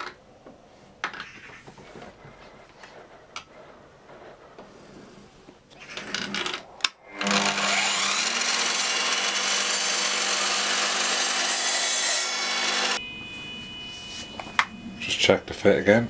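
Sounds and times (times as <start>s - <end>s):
scraping: 0.8s - 8.2s
miter saw cutting wood: 7.0s - 13.0s.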